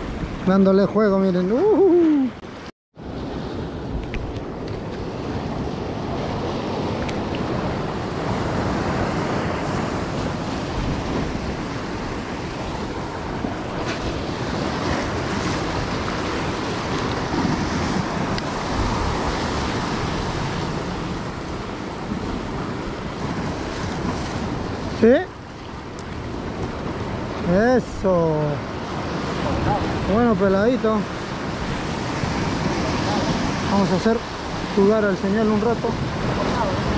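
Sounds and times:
ocean surf on shore: 0.0s - 36.9s
wind buffeting microphone: 0.0s - 36.9s.

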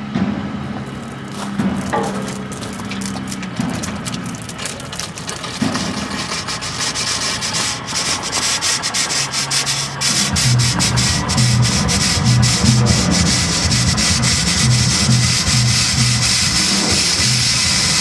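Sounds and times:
steam locomotive venting steam: 0.6s - 18.0s
low pulsing throb: 10.1s - 17.4s.

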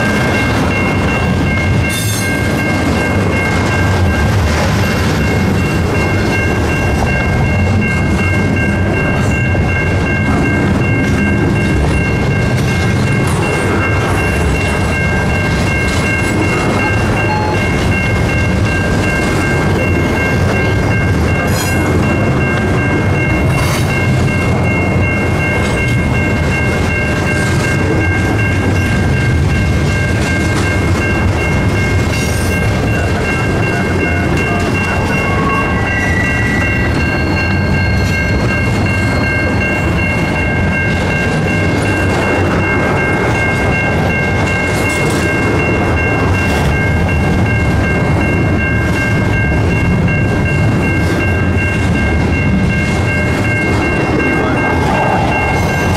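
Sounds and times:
level crossing bell ringing: 0.0s - 55.9s
train wheels rumbling on rail: 0.0s - 55.9s.

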